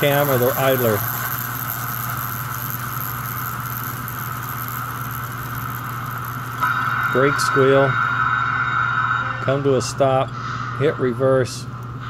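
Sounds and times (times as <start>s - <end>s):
model locomotive motor buzzing: 0.0s - 7.9s.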